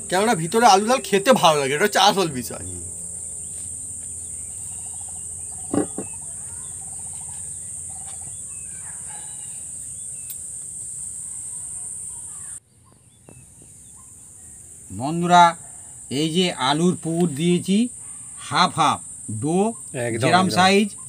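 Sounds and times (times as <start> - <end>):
crickets chirring: 0.0 - 21.0
short knock: 5.7 - 6.2.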